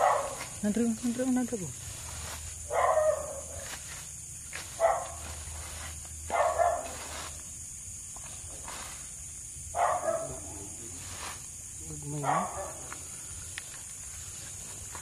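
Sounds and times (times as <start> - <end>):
dog barking: 0.0 - 0.4, 2.7 - 3.6, 4.8 - 5.2, 6.3 - 7.0, 9.8 - 10.4, 12.2 - 12.9.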